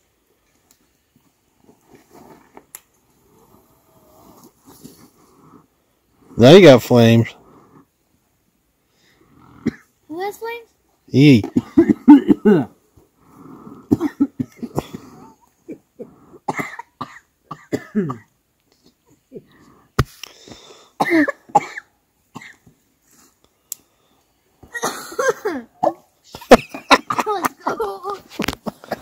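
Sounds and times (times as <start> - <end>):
people coughing: 11.4 - 12.7, 13.9 - 18.3, 21.0 - 21.8, 24.7 - 27.8.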